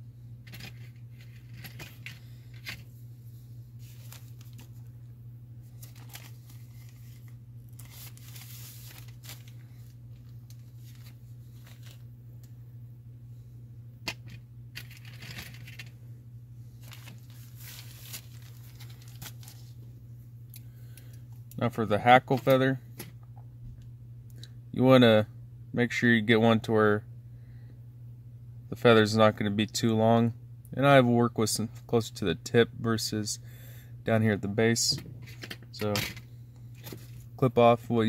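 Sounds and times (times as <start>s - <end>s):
steady low hum: 0.0s - 38.0s
rustling of materials being handled: 3.8s - 4.9s, 5.6s - 12.1s, 16.7s - 19.9s.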